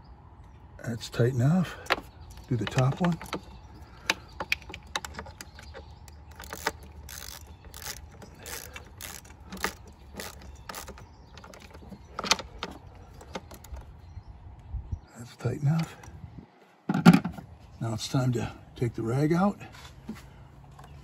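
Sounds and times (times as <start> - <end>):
ratchet clicking: 1.9 - 13.8.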